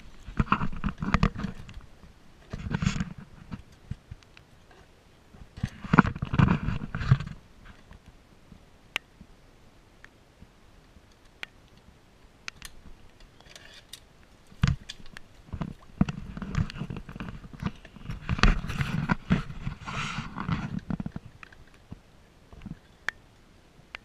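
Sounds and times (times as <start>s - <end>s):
small clicks: 11.0s - 18.6s.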